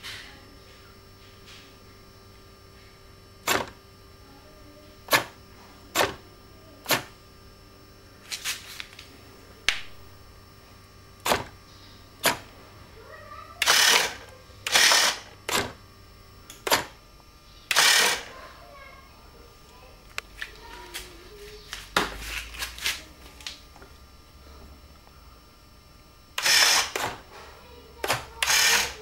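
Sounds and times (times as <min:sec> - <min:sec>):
sharp clicks: 0:17.7 - 0:18.2.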